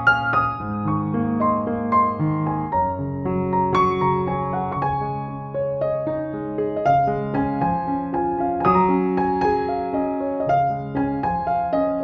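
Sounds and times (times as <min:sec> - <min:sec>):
solo piano music: 0:00.0 - 0:12.0.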